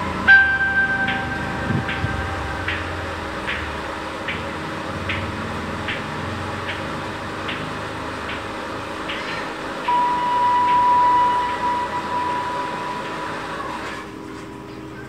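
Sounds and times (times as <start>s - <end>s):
high steady tone: 0.0s - 4.4s, 9.8s - 14.2s
mechanical hum: 0.0s - 15.0s.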